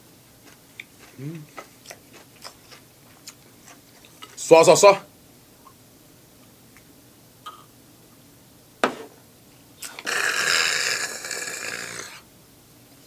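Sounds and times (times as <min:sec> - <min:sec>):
shot glass knocked on table: 0:08.8 - 0:09.1.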